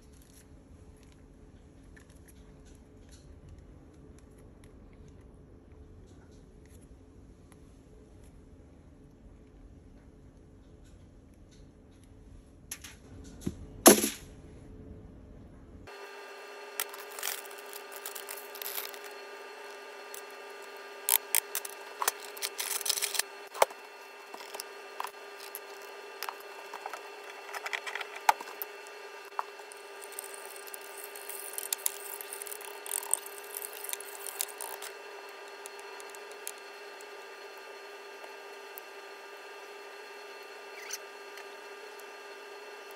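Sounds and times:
steady hum: 12.0 - 42.9.

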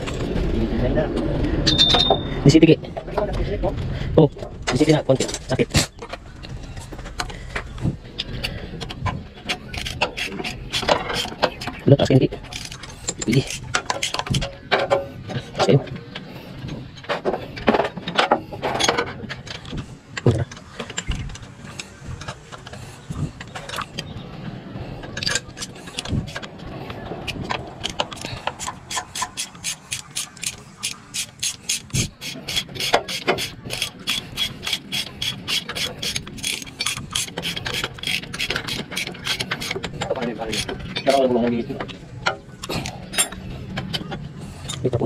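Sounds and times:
ratchet wrench clicking: 27.3 - 41.2.

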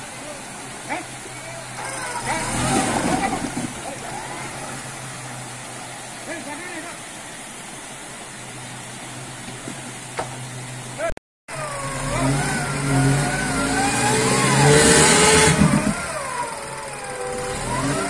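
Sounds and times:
suv engine revving: 0.0 - 6.4, 10.4 - 18.0.

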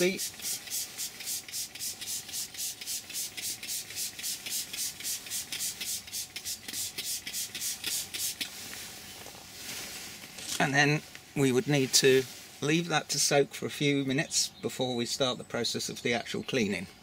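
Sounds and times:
spray bottle hissing sprays: 0.0 - 8.6.

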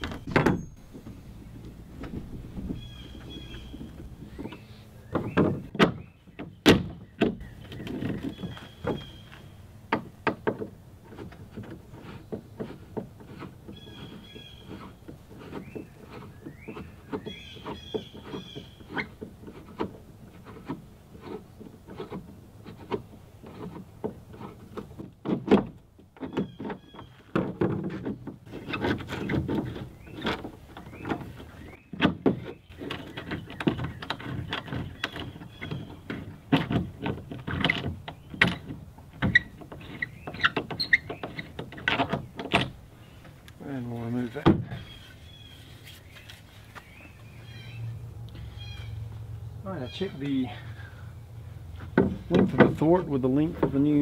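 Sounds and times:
hand tools clicking and knocking: 0.0 - 42.8.

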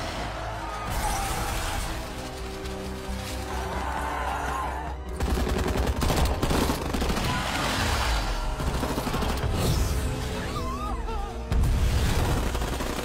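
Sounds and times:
dramatic background music: 0.0 - 13.0.

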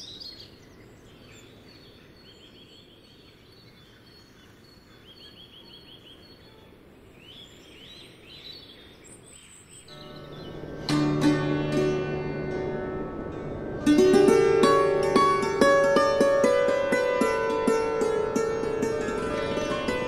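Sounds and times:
small birds chirping: 0.0 - 12.0
low background rumble: 9.9 - 20.0.

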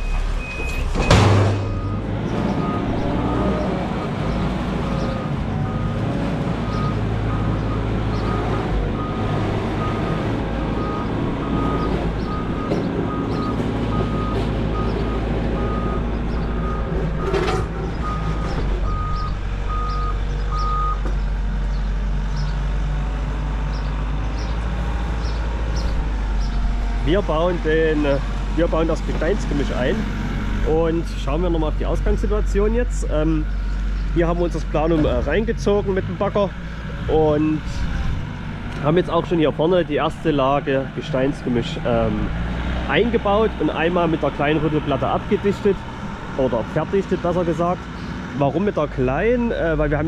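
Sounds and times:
reversing beeper beeps: 0.0 - 2.0, 18.0 - 21.0
diesel engine running: 0.0 - 50.0.

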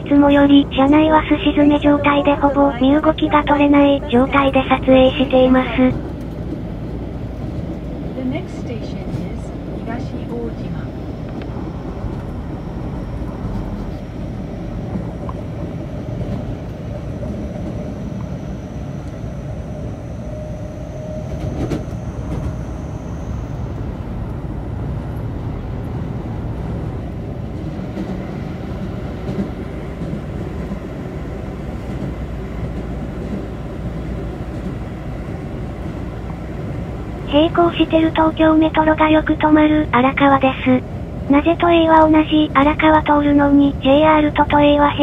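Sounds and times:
faint high whine: 10.1 - 24.9.

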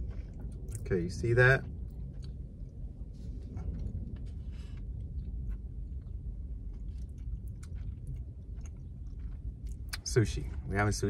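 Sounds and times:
car cabin hum: 0.0 - 11.0.

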